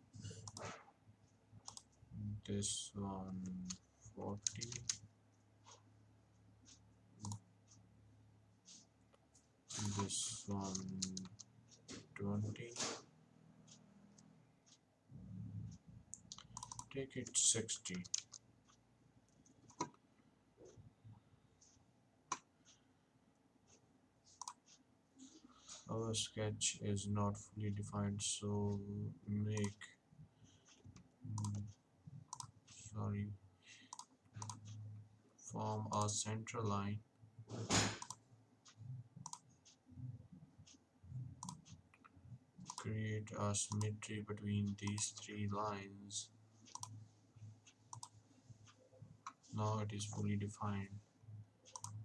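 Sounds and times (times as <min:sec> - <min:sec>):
computer mouse clicks: 0:00.2 - 0:00.9, 0:01.6 - 0:02.0, 0:03.3 - 0:05.0, 0:06.6 - 0:07.8, 0:09.7 - 0:13.0, 0:15.7 - 0:20.0, 0:22.3 - 0:22.8, 0:23.4 - 0:24.8, 0:29.5 - 0:29.9, 0:30.5 - 0:32.9, 0:33.7 - 0:35.0, 0:37.8 - 0:43.0, 0:43.6 - 0:45.8, 0:46.6 - 0:50.9, 0:51.6 - 0:52.0.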